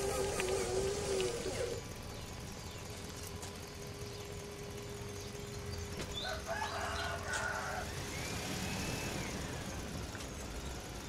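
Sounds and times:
rooster crowing: 0:06.2 - 0:08.0.

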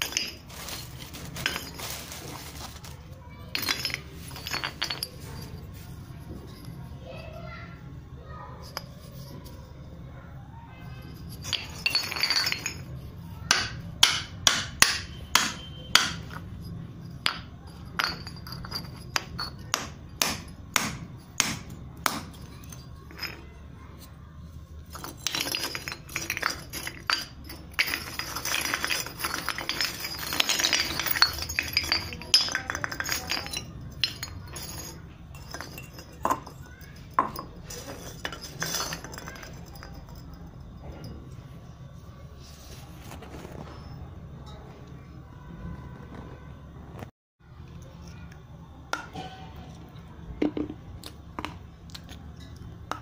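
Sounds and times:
clay scraping and rubbing: 0:00.0 - 0:07.5, 0:08.4 - 0:10.0, 0:10.9 - 0:41.2, 0:42.3 - 0:44.7
clay pots clinking and knocking: 0:00.0 - 0:07.8, 0:08.5 - 0:10.0, 0:10.8 - 0:41.6, 0:48.3 - 0:53.0.

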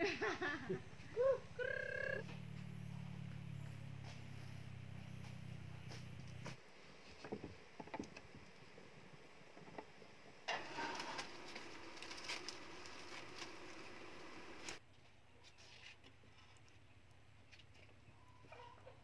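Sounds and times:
stove fire hissing and crackling: 0:05.5 - 0:14.8.

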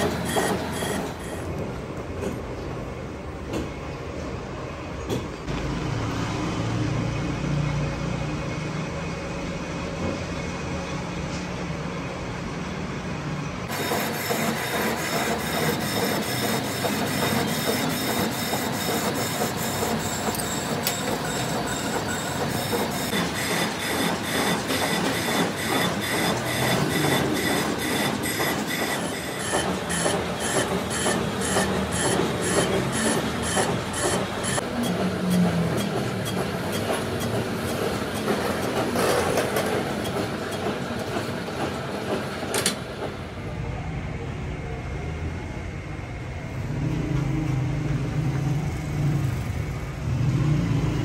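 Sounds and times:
metalworking machinery clatter: 0:00.0 - 0:04.4, 0:13.6 - 0:43.5.

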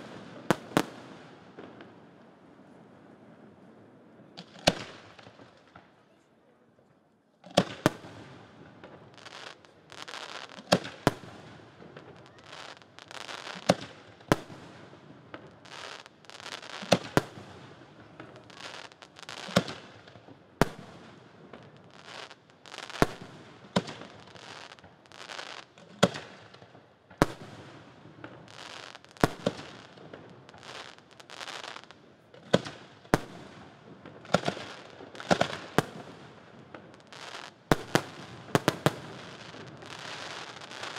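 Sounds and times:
firework bangs: 0:27.2 - 0:40.9.

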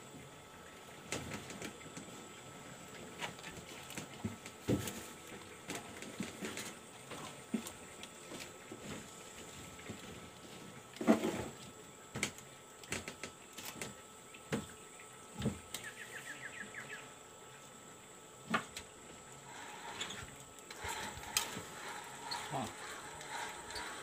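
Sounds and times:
fishing reel clicks and rustle: 0:19.4 - 0:24.0.

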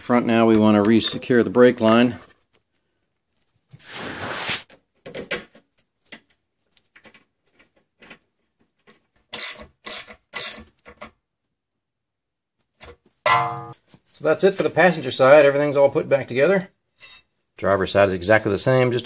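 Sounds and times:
ratchet wrench clicking: 0:09.3 - 0:10.6.

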